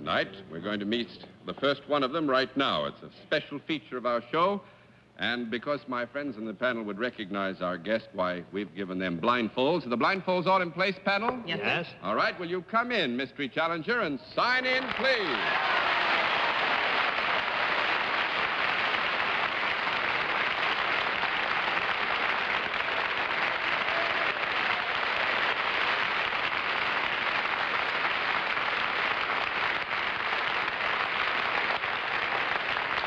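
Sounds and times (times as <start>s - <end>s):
audience applauding: 14.8s - 33.0s.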